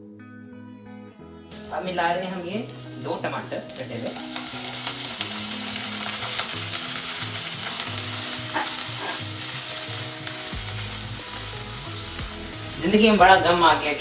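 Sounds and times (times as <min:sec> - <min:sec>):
vegetables sizzling in ghee: 0:01.5 - 0:14.0
spatula stirring in a pan: 0:04.2 - 0:12.5.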